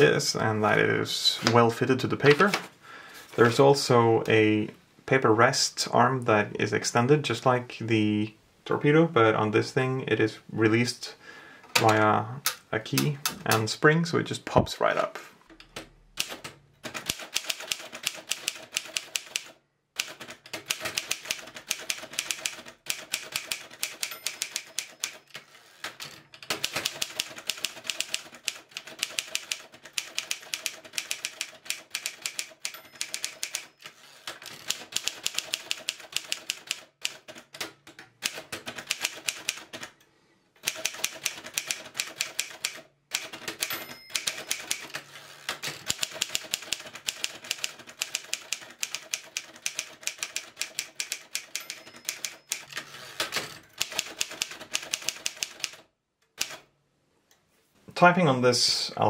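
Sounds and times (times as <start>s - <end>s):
manual typewriter typing: 15.6s - 40.0s, 40.6s - 56.7s.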